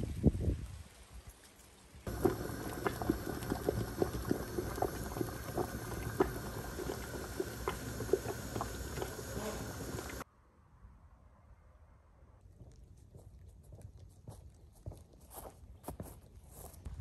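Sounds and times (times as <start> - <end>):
water boiling in a pot: 2.0 - 10.2.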